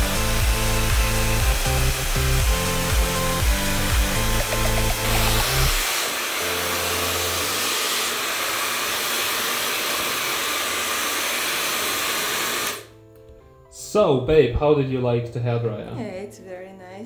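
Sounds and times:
hair dryer blowing: 0.0 - 12.9.

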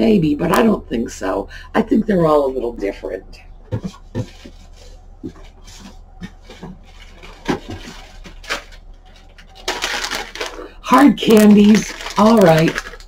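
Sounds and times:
packaged goods knocking and clicking: 3.7 - 10.6, 11.6 - 13.0.

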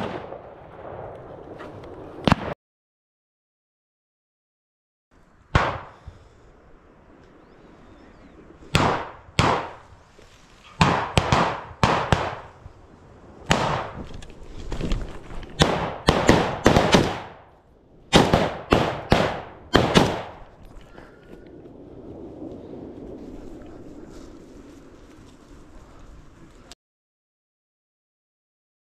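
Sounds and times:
shotgun shots echoing: 0.0 - 0.5, 2.2 - 2.6, 5.5 - 6.0, 8.7 - 9.9, 10.7 - 12.6, 13.5 - 14.0, 15.6 - 17.5, 18.1 - 20.5.

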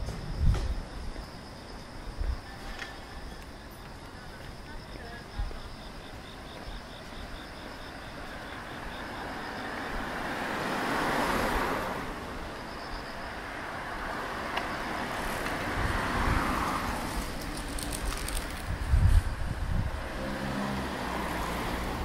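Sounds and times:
cars driving past: 7.6 - 22.0.

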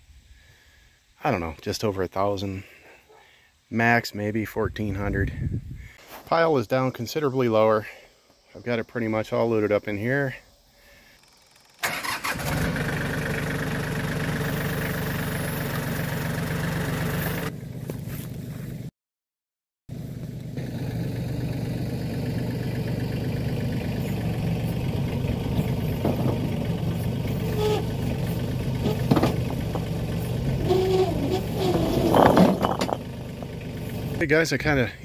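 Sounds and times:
tractor diesel engine running: 11.5 - 18.9, 19.9 - 35.0
loader bucket knocks: 25.7 - 26.8, 28.8 - 30.1, 31.0 - 33.5.

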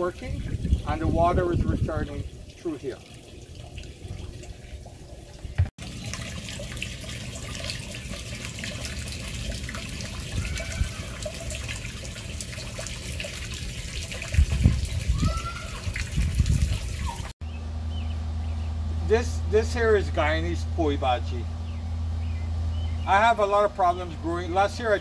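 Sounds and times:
water trickling into a barrel: 0.0 - 17.4.

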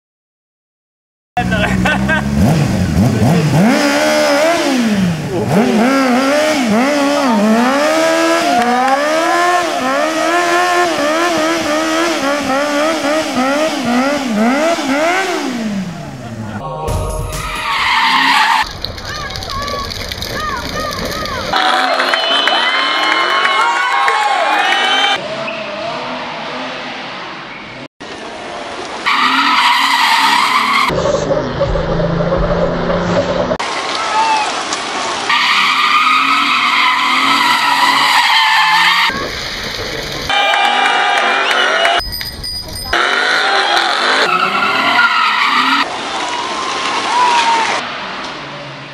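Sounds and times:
motorcycle engine at high revs: 1.4 - 16.6, 42.9 - 44.8
tyres screeching: 17.3 - 18.7, 29.0 - 32.3, 35.3 - 39.2, 40.3 - 45.9.

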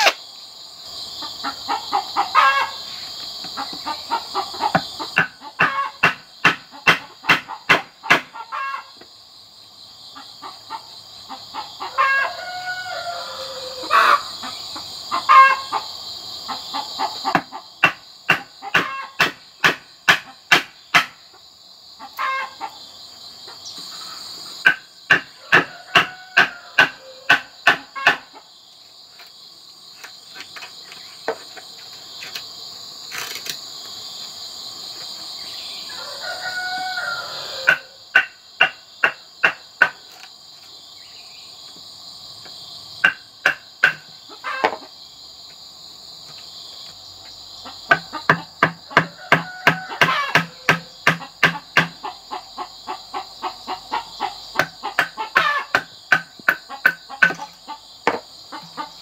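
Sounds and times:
shrill insect buzz: 0.0 - 7.6, 8.3 - 19.6, 20.3 - 59.0
rooster crowing: 11.8 - 14.4, 25.3 - 27.6, 35.8 - 38.1, 48.9 - 51.0
blade chopping bamboo: 17.4 - 21.2, 43.0 - 44.0, 47.9 - 52.0.

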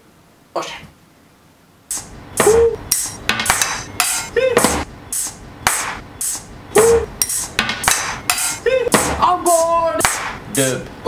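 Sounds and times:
sharp percussive hits: 1.9 - 10.4
short swooping tones: 6.2 - 7.6.

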